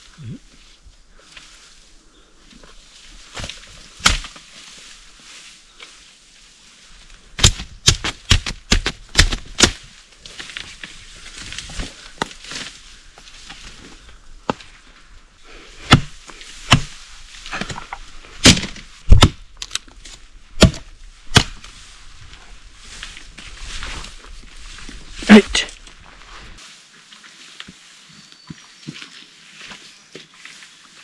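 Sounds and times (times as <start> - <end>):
blade chopping bamboo: 3.4 - 4.4, 7.4 - 9.8, 15.8 - 17.0, 18.4 - 19.8, 20.6 - 21.6.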